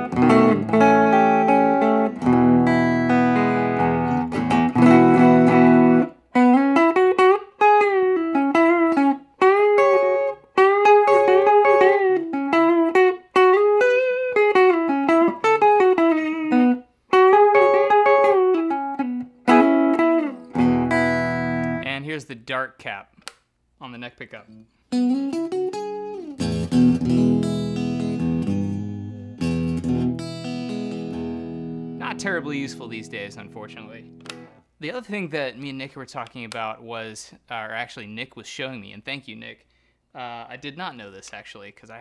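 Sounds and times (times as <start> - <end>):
electric guitar strummed chords: 0.0 - 21.8, 24.9 - 34.6
electric guitar string bends: 31.9 - 34.6.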